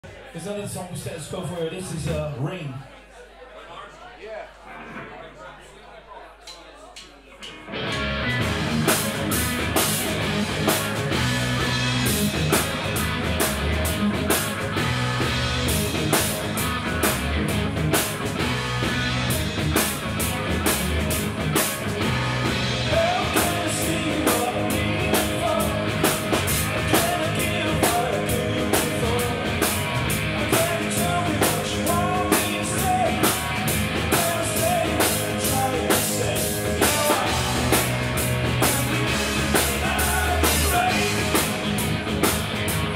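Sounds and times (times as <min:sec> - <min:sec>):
drum kit beat: 0:07.4 - 0:42.9
bass guitar: 0:07.5 - 0:42.9
distorted electric guitars: 0:07.5 - 0:42.9
man singing lead vocal: 0:22.8 - 0:41.7.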